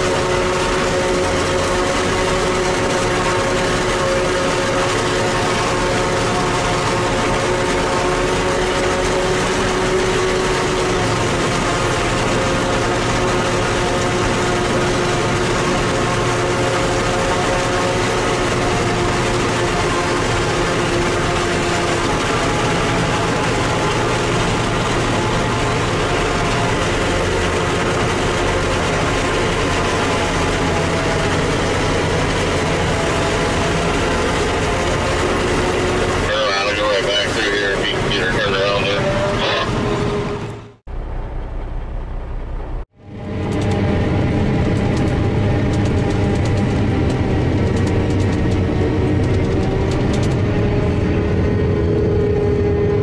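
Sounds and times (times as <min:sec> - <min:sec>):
forage harvester chopping corn: 0:00.0 - 0:39.6
multi-tone machinery whine: 0:00.0 - 0:53.0
tractor engine drone: 0:00.0 - 0:53.0.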